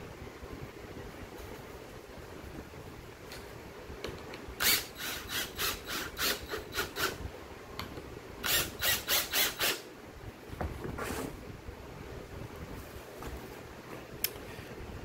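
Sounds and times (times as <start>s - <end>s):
cordless drill driving screws: 4.6s - 7.2s, 8.4s - 9.8s.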